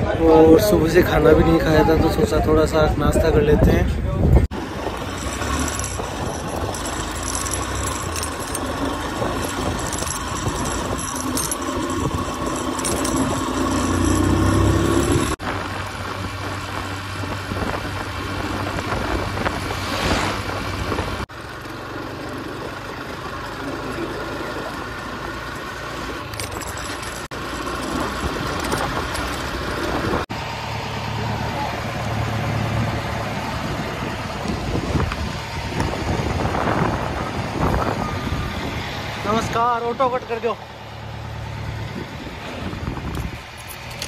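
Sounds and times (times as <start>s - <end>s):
motorcycle engine running: 4.5s - 19.6s, 20.7s - 31.8s.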